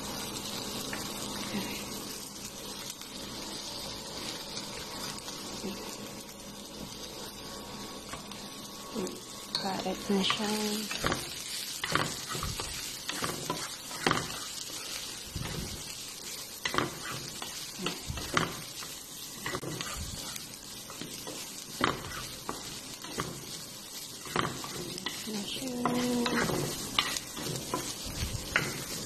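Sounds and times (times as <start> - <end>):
food sizzling in a frying pan: 0.0 - 29.0
spatula scraping and knocking pan: 9.5 - 29.0.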